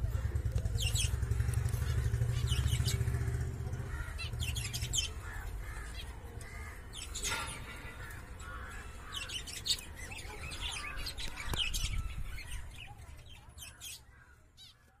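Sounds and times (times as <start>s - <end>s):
low handling rumble: 0.0s - 10.0s
budgerigars chirping: 0.7s - 3.2s, 3.9s - 14.0s.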